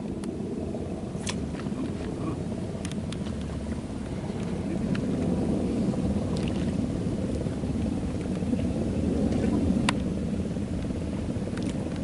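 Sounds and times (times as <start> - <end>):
low rumble: 0.0 - 12.0.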